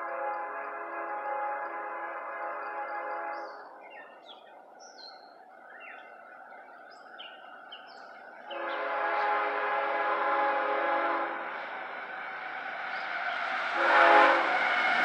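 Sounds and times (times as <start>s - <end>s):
distant locomotive horn: 0.0s - 4.2s, 8.4s - 15.0s
songbirds chirping: 0.1s - 10.4s.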